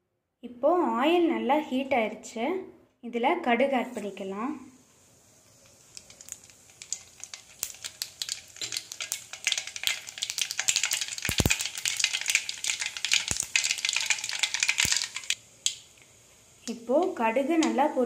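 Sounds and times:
mustard seeds popping in hot oil: 0:05.1 - 0:18.0.

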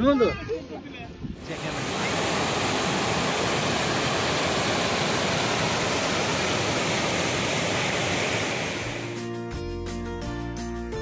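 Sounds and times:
waterfall rushing: 0:01.4 - 0:09.2.

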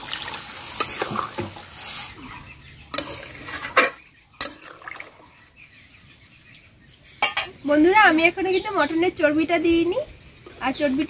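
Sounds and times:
water pouring into pan: 0:00.0 - 0:01.7.

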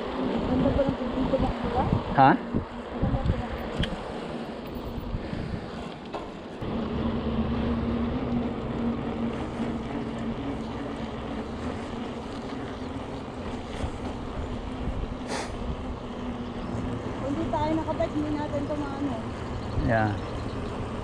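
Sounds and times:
bicycle riding rumble: 0:00.0 - 0:21.0
steady low hum: 0:00.0 - 0:21.0.

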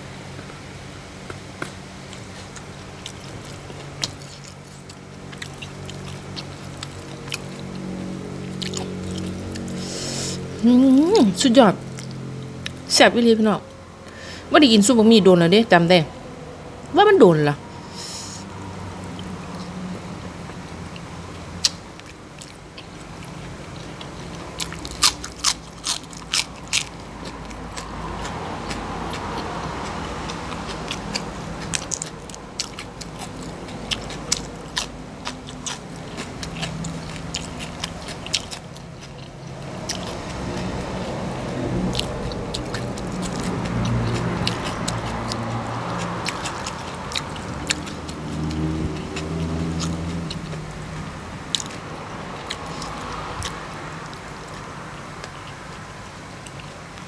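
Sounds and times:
person chewing: 0:01.3 - 0:12.9, 0:17.8 - 0:57.0
crunching raw vegetables: 0:21.6 - 0:57.0.

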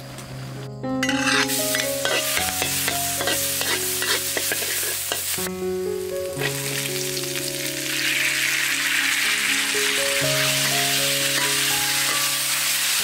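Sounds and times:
metal spatula scraping a wok: 0:01.0 - 0:05.4
garlic sizzling in hot oil: 0:01.0 - 0:13.0.

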